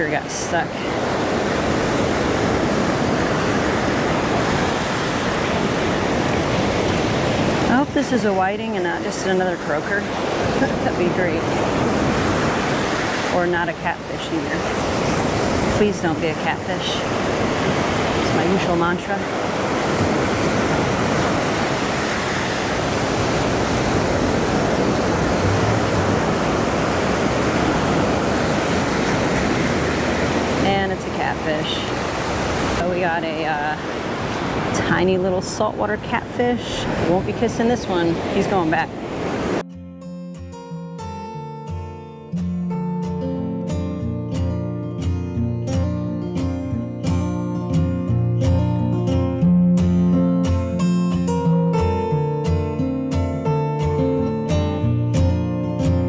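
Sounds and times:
ocean surf breaking: 0:00.0 - 0:39.7.

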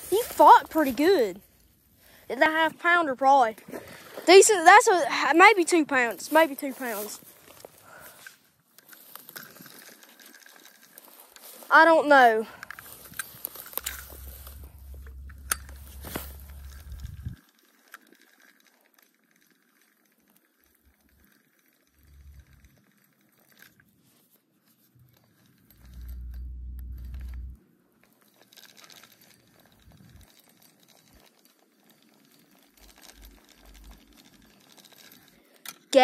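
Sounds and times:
fishing reel clicks and rustles: 0:00.0 - 0:36.0
low rumble on microphone: 0:12.7 - 0:17.4, 0:25.7 - 0:27.6.

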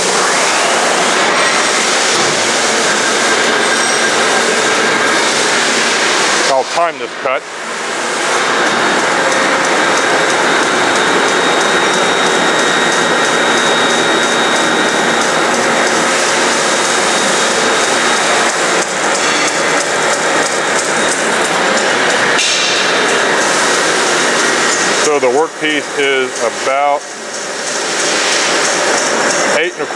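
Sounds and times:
bandsaw cutting with high whine: 0:00.0 - 0:29.9
dust extraction rushing: 0:07.8 - 0:29.9.

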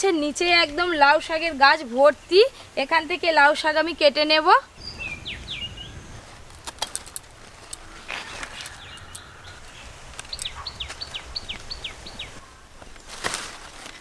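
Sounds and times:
bird whistling call: 0:04.8 - 0:06.3.

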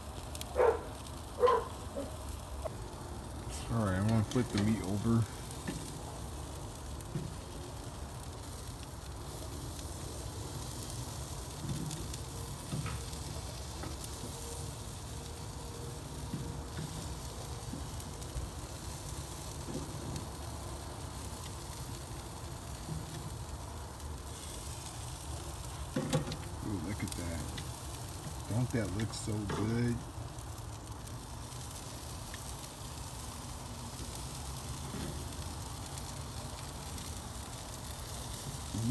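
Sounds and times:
meat sizzling on grill: 0:00.0 - 0:38.9.

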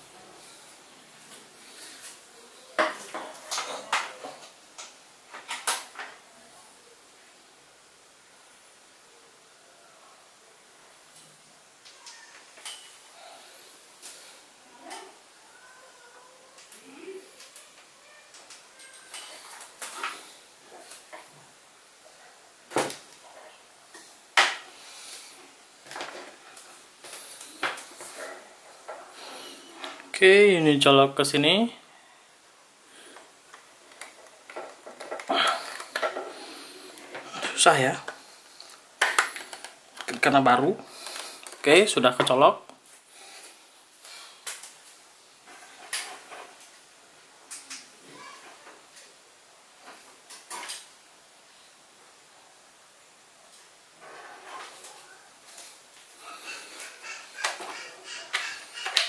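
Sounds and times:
cable rustling: 0:22.7 - 0:30.4, 0:33.0 - 0:49.1
hard objects clicking and knocking: 0:33.5 - 0:40.2, 0:56.8 - 0:59.0.

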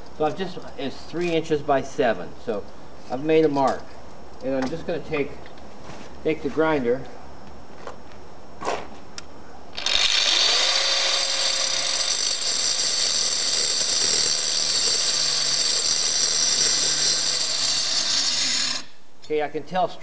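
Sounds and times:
angle grinder cutting concrete: 0:09.8 - 0:18.9.

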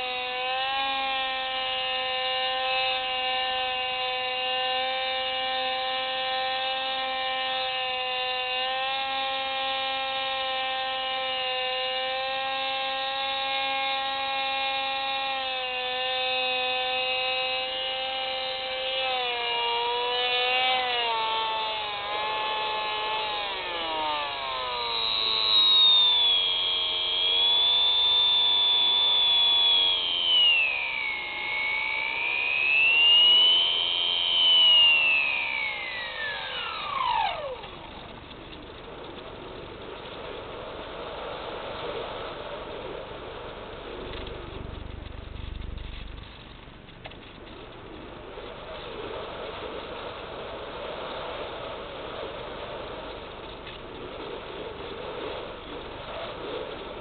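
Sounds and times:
drone motors humming: 0:00.0 - 0:57.0
high motor whine sweeping: 0:00.0 - 0:57.0.

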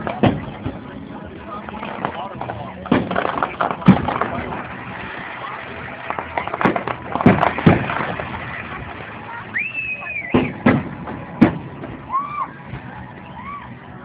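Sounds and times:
fireworks pops and crackle: 0:00.0 - 0:13.2
fireworks bangs: 0:00.0 - 0:13.3.

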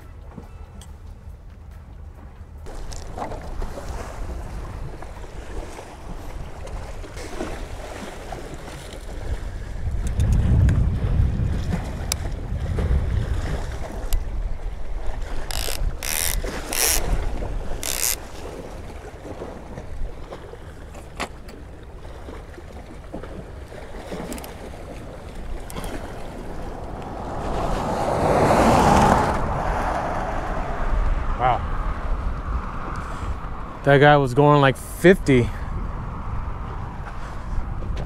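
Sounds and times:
wind buffeting microphone: 0:02.1 - 0:20.8, 0:21.7 - 0:38.0
fishing reel rasps: 0:15.4 - 0:17.2, 0:17.8 - 0:18.2
pickup truck driving past: 0:26.6 - 0:30.9.

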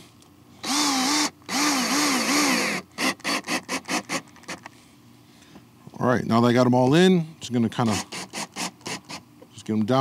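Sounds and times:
cordless drill driving screws: 0:00.6 - 0:04.2.

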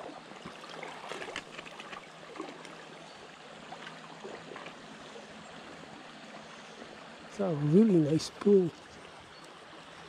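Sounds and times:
stream running over stones: 0:00.0 - 0:10.0
water splashes: 0:00.0 - 0:10.0.

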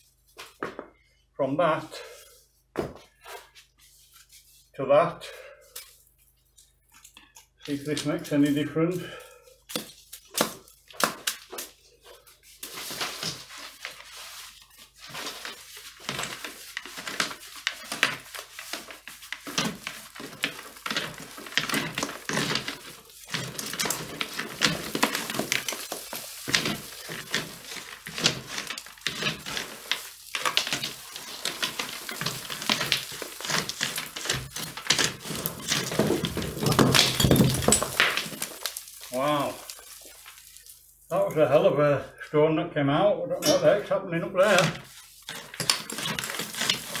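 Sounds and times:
chimney brush scraping and knocking: 0:02.0 - 0:04.8, 0:12.4 - 0:41.6, 0:43.4 - 0:47.0
stone clattering down flue: 0:19.4 - 0:40.8, 0:44.5 - 0:47.0
debris dropping into hearth: 0:19.6 - 0:40.6.

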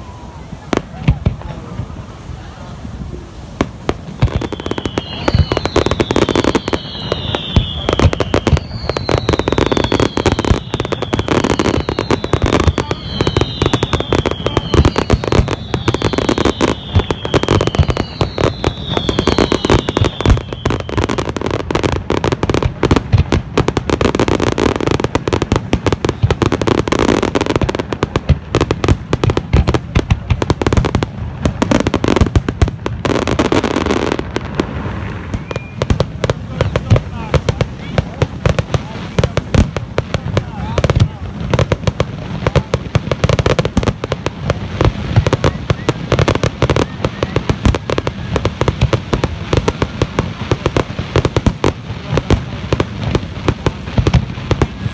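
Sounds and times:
falling firework whistles: 0:03.6 - 0:23.1, 0:33.0 - 0:37.0, 0:44.8 - 0:49.8.

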